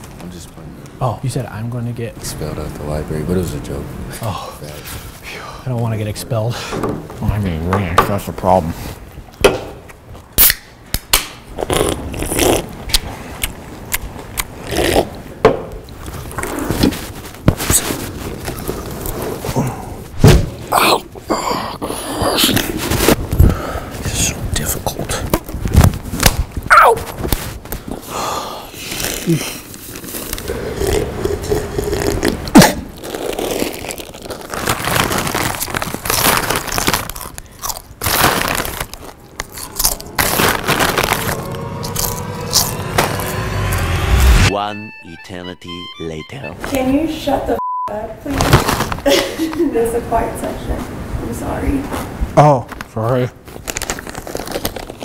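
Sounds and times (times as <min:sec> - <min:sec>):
chips crunching while chewed: 0:28.9 - 0:41.4, 0:53.6 - 0:55.0.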